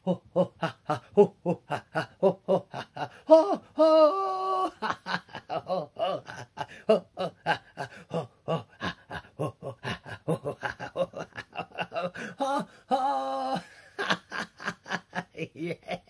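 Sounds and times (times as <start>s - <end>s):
man chanting rhythmic laughter: 0.0s - 16.0s
man vocal hoot: 3.3s - 4.8s, 12.4s - 13.7s.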